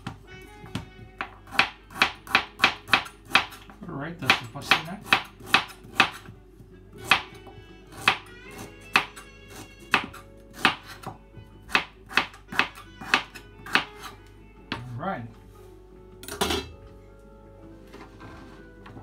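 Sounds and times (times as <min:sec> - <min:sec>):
knife chopping on plastic board: 0:00.0 - 0:06.4, 0:07.0 - 0:14.9.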